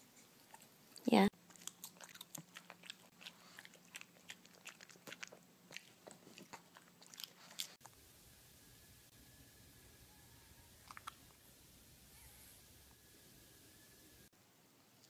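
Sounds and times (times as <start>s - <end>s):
dog chewing: 0.1s - 7.9s
faint hiss: 7.8s - 15.0s.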